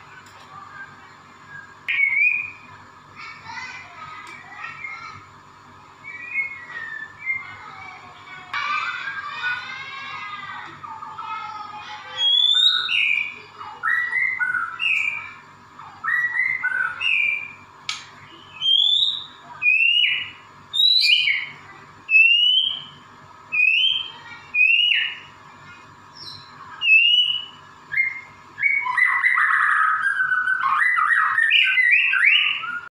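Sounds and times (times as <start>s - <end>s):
bird singing whistled phrases: 0.7s - 2.6s, 6.0s - 7.6s, 12.1s - 15.4s, 16.0s - 17.6s, 18.2s - 25.3s, 26.1s - 32.9s.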